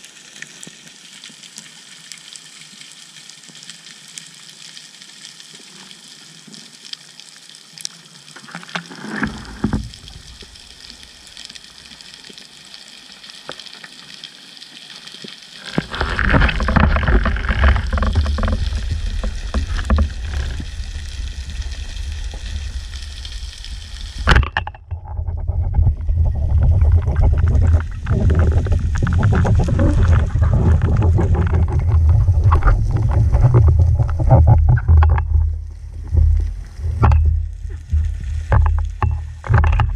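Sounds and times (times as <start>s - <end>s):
faint crackling hiss: 0.0s - 24.5s
underwater rush of water: 0.0s - 39.9s.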